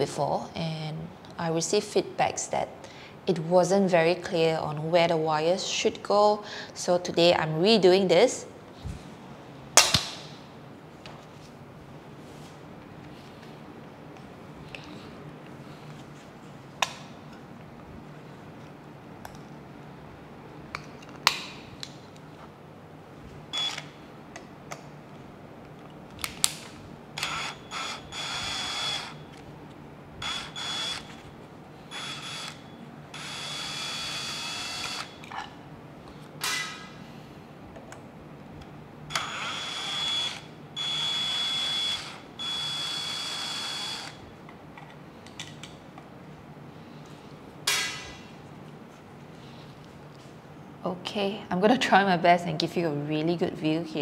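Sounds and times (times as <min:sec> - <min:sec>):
cordless drill running: 0:27.2 - 0:29.2, 0:30.2 - 0:31.2, 0:31.9 - 0:35.2, 0:39.1 - 0:44.2.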